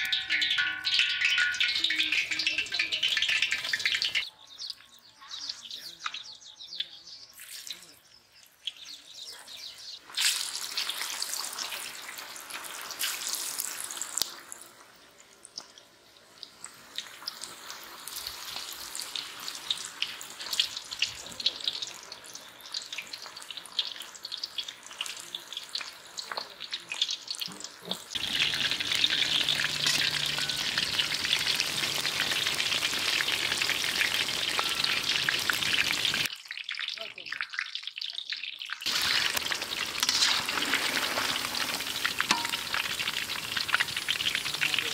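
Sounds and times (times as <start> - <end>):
food deep-frying in hot oil: 0.0 - 44.9.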